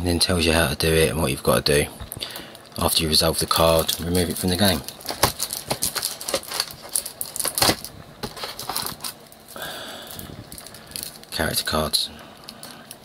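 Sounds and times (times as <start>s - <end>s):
card deck rustle: 3.6s - 9.3s.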